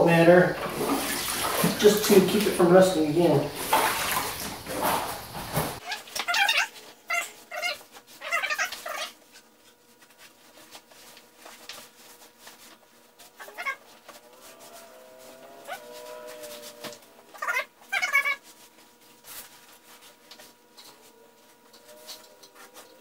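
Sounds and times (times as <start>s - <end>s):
cat meowing: 13.4s - 13.8s, 15.3s - 18.4s.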